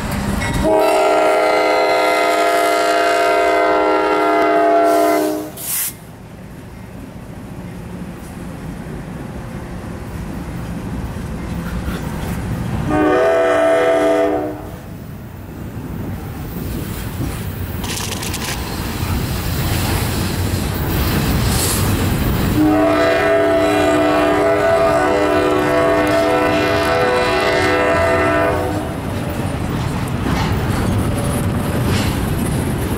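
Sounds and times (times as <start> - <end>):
train wheels rumbling on rails: 0.0 - 32.9
locomotive air horn chord: 0.6 - 5.9, 12.8 - 14.9, 22.6 - 29.0.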